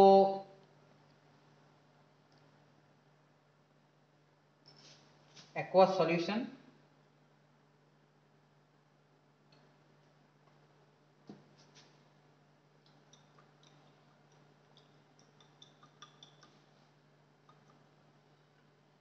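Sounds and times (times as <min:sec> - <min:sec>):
faint steady hum: 0:00.0 - 0:19.0
test tube ticking while shaken: 0:12.8 - 0:16.7, 0:17.4 - 0:18.0.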